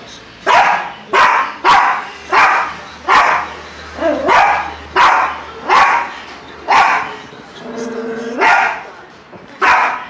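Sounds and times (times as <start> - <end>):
small dog barking: 0.5 - 3.5, 4.1 - 6.1, 6.7 - 7.1, 8.4 - 8.8, 9.6 - 10.0.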